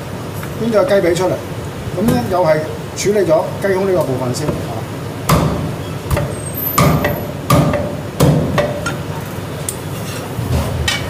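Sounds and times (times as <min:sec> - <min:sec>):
cleaver chopping on wooden block: 0:05.3 - 0:08.8.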